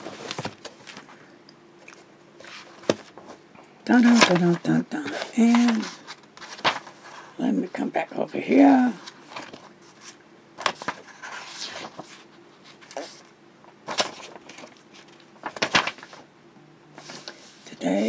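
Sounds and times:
paper pages being turned: 1.8s - 3.4s, 4.0s - 7.2s, 8.9s - 16.2s, 17.0s - 17.7s.

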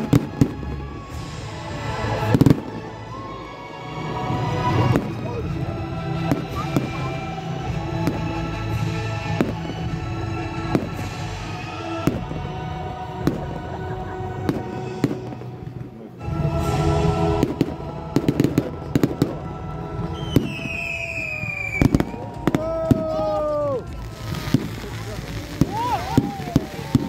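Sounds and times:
fireworks bangs and crackling: 0.0s - 3.3s, 4.4s - 27.0s
firework falling whistle: 20.2s - 23.0s.

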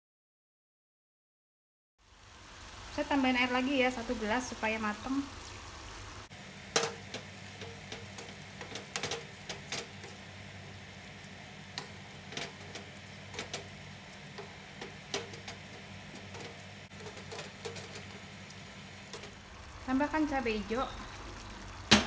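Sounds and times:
low steady hum: 2.6s - 22.0s
spatula scraping frying pan: 6.8s - 19.4s.

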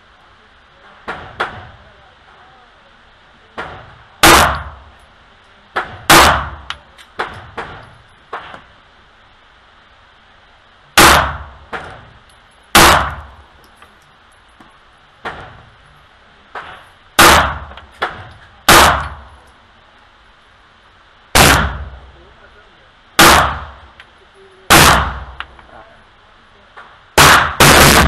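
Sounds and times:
faint distant gunshots: 3.6s - 4.9s, 5.8s - 8.6s, 11.0s - 12.1s, 12.8s - 13.4s, 16.6s - 19.3s, 21.4s - 22.1s, 23.2s - 23.8s, 24.7s - 25.4s, 27.2s - 28.0s.

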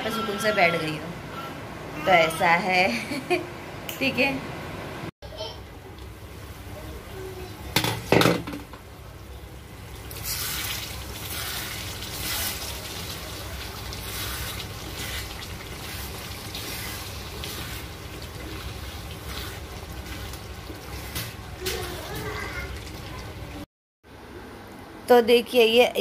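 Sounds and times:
curry simmering and bubbling: 9.3s - 23.6s
wooden spatula stirring: 11.2s - 22.8s.

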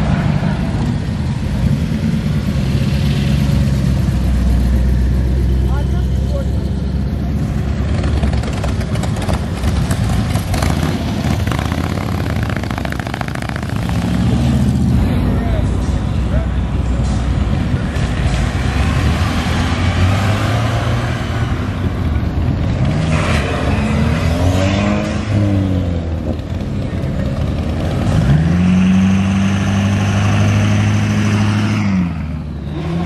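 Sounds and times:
cars accelerating past: 16.9s - 26.6s, 27.3s - 33.0s.

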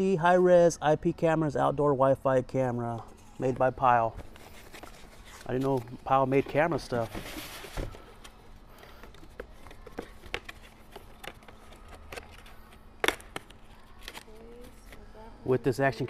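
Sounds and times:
faint steady hum: 0.0s - 16.0s
packaging being handled: 4.0s - 15.1s.

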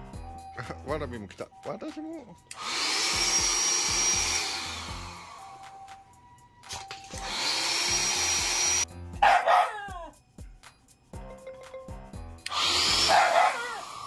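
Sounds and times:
electric air pump whirring: 2.5s - 5.9s, 6.7s - 8.9s, 12.4s - 14.0s
dog barking angrily: 9.2s - 9.8s, 13.0s - 13.8s.

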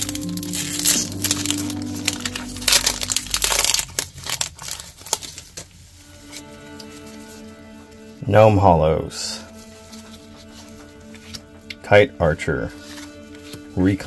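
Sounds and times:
plastic wrapper crinkling: 0.0s - 6.4s.

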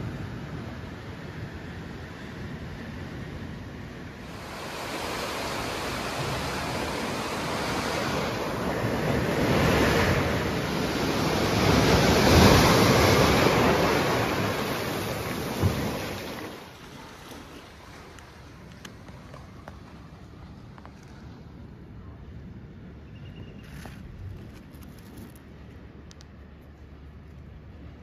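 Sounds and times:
waves breaking on beach: 0.0s - 20.6s.

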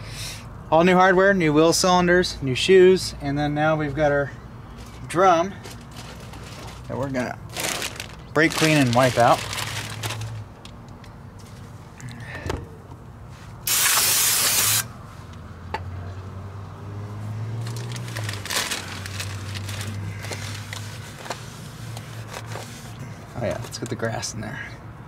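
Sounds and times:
aerosol spray hissing: 13.7s - 14.8s.

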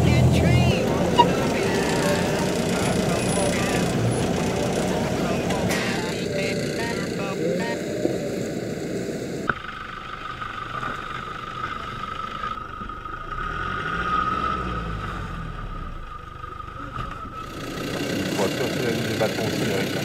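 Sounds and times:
steady high whine: 0.0s - 13.4s
vehicle engine rumbling: 0.0s - 20.0s.

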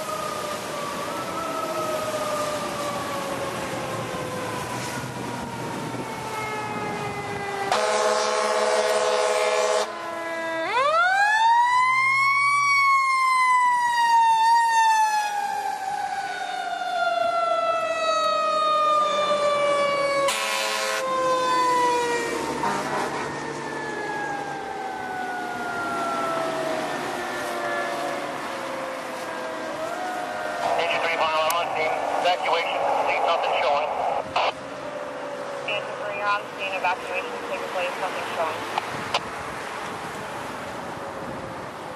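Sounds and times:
fire truck siren wailing: 0.0s - 41.9s
air horn blasts: 7.7s - 9.9s, 20.3s - 21.0s.

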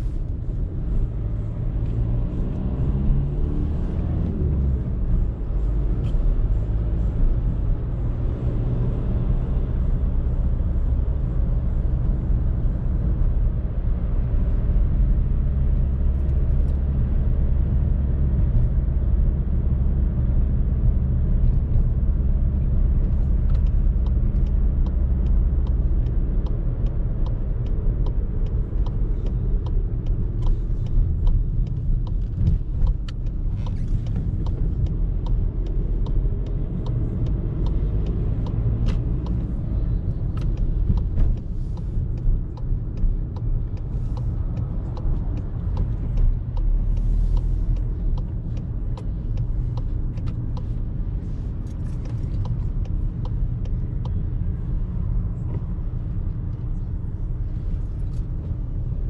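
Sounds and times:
car engine drone: 0.0s - 59.0s
road noise: 0.0s - 59.0s
light irregular clicks: 15.5s - 59.0s.

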